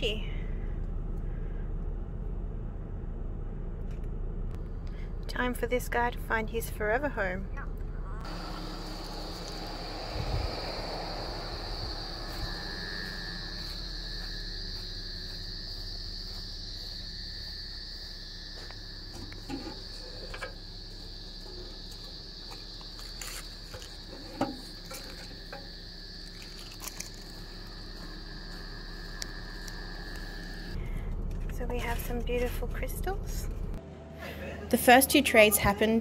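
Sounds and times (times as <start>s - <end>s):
crickets chirping: 4.6s - 33.8s
low insect tone: 7.5s - 33.8s.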